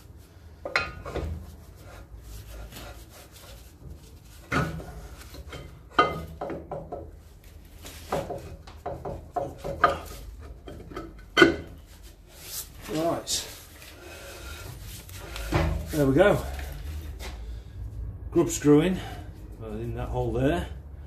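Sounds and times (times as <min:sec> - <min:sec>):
brake drum scraping: 0:09.2 - 0:17.6.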